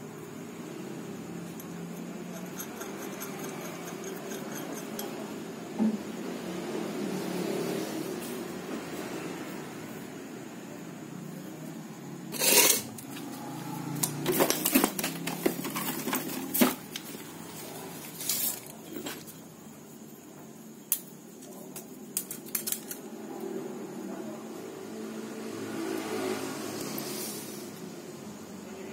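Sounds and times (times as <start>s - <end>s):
metal clinking on concrete floor: 1.5s - 5.4s, 12.4s - 13.1s.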